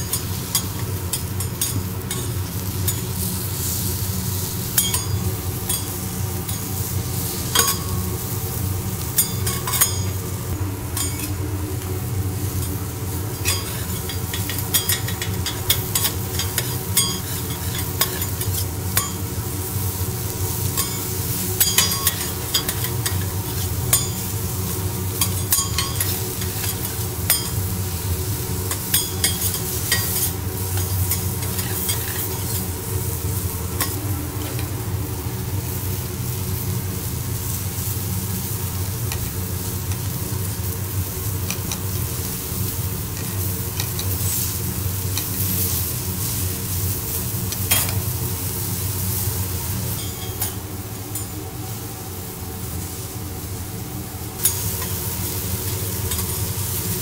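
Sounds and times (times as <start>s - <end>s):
food sizzling on a griddle: 0.0s - 57.0s
low steady hum: 0.0s - 57.0s
metal spatulas scraping and clicking: 0.1s - 3.1s, 9.2s - 10.2s, 13.4s - 19.2s, 21.6s - 24.2s, 28.7s - 32.6s, 47.7s - 48.0s.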